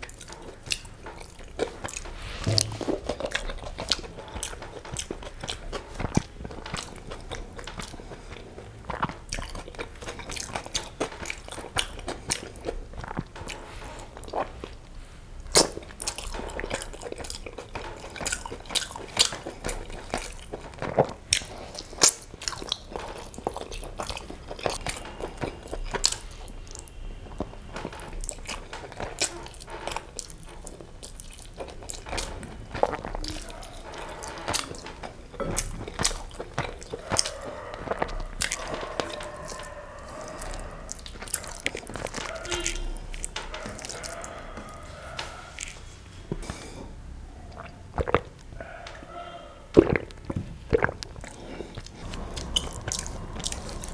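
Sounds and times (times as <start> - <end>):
chewing and biting food: 0.0 - 46.7, 47.5 - 53.9
mouth clicks and smacks: 47.5 - 49.1, 49.7 - 53.9.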